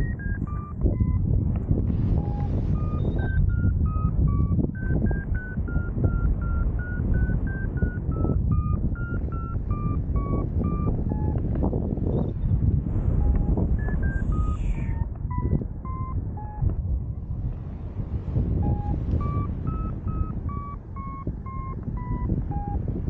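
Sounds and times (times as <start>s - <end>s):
variometer beeping: 0.0s - 1.2s, 2.2s - 11.5s, 13.1s - 16.8s, 18.6s - 23.0s
wind noise on microphone: 0.0s - 23.0s.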